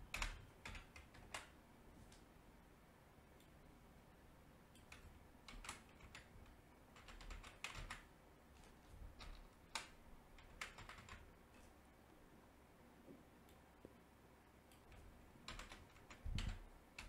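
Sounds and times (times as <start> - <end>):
faint keyboard typing: 0.0 - 2.3, 4.7 - 11.8, 14.6 - 17.0.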